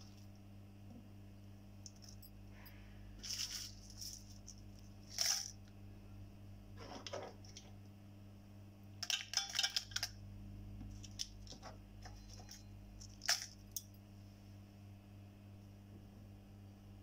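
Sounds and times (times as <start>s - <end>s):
low steady hum: 0.0s - 17.0s
nuts clicking on metal jar: 3.2s - 5.7s, 9.0s - 10.2s, 12.3s - 14.0s.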